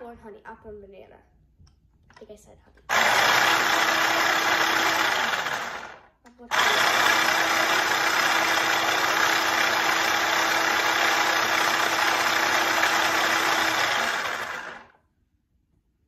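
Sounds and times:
food chopper motor whirring: 2.9s - 15.0s.

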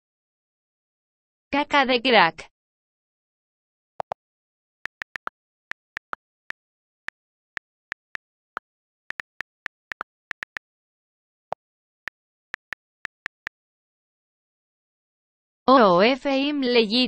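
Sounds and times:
on-screen keyboard key clicks: 4.9s - 5.3s, 9.1s - 10.6s, 12.6s - 13.5s.

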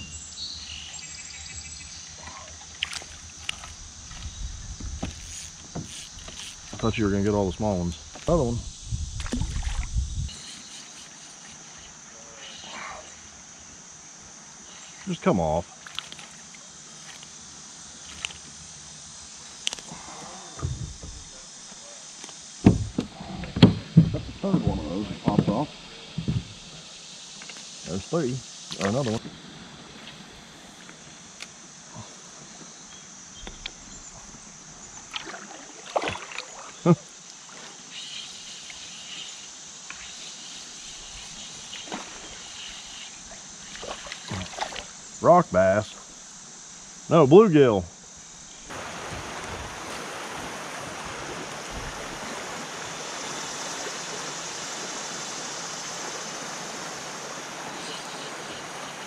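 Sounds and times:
insects buzzing: 0.0s - 59.0s
river ambience: 0.0s - 59.0s
higher buzzing: 3.4s - 12.1s
low thuds: 20.6s - 21.5s, 22.6s - 26.7s
faint knock: 22.6s - 25.6s.

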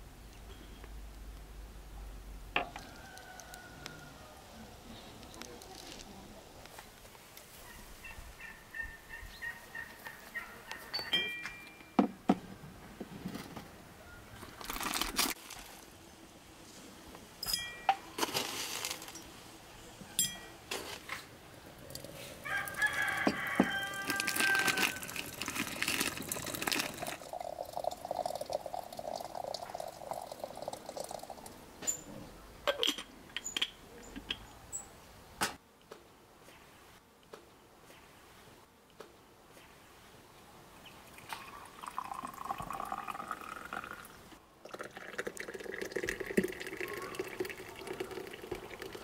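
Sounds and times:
rooster crowing: 2.6s - 4.7s, 22.4s - 25.4s.

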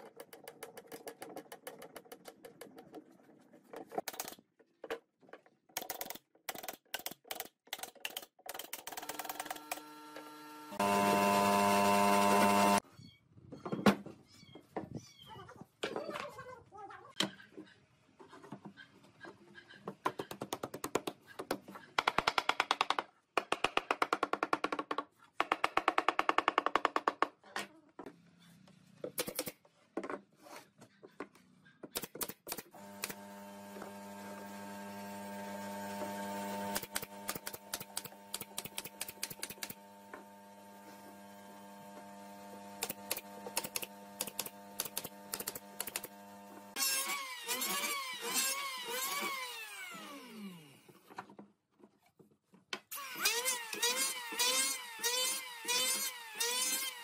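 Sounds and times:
nail gun firing: 32.0s - 33.3s, 36.7s - 39.8s, 42.8s - 46.2s.

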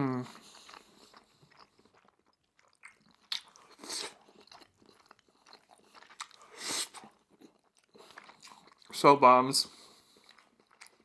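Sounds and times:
wet chewing and mouth clicks: 0.2s - 11.0s
noodle slurps: 6.3s - 7.2s.

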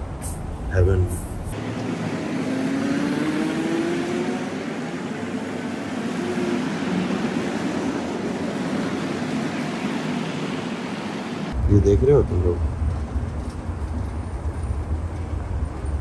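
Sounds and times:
street traffic: 0.0s - 16.0s
engine passing: 0.8s - 16.0s
vehicle engine accelerating: 1.5s - 11.8s.

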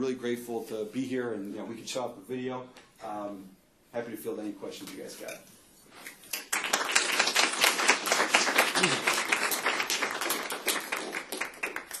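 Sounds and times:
audience applauding: 6.3s - 12.0s.

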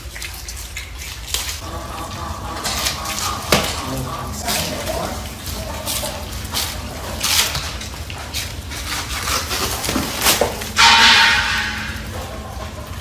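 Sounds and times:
chewing clicks: 0.0s - 3.4s
rustling leaves: 0.0s - 13.0s.

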